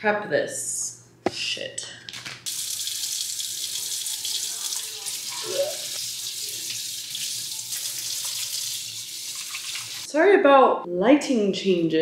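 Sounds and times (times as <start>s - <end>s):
faucet running into steel sink: 2.5s - 10.1s.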